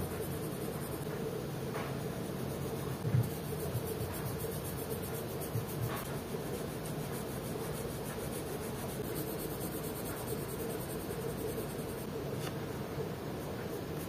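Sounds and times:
background hiss and hum: 0.0s - 14.0s
pencil scratching on paper: 2.2s - 12.6s.

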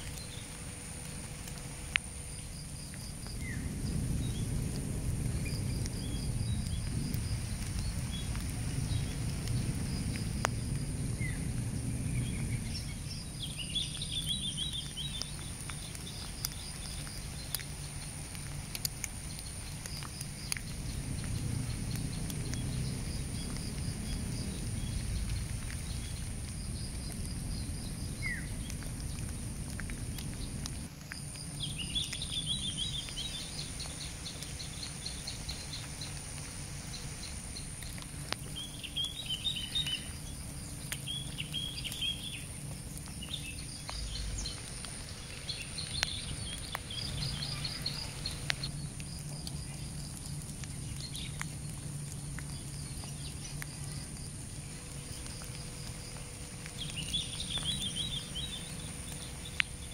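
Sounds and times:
low uneven rumble: 0.0s - 59.9s
birds chirping and trilling: 36.9s - 48.7s, 56.1s - 59.9s.

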